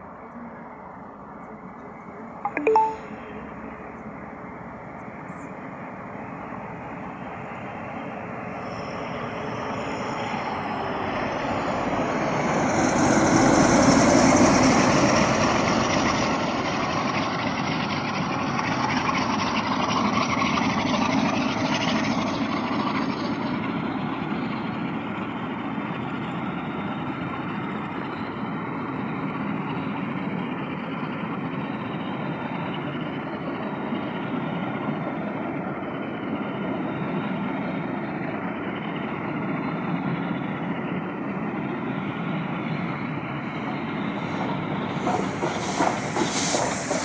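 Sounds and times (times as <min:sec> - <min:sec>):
diesel locomotive passing: 0:00.0 - 0:47.0
train wheels on rails: 0:10.6 - 0:47.0.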